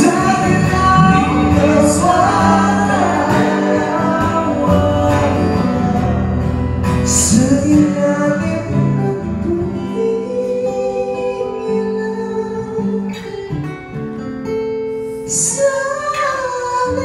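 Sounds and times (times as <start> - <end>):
men singing in harmony: 0.0 - 10.0
acoustic guitar: 0.0 - 17.0.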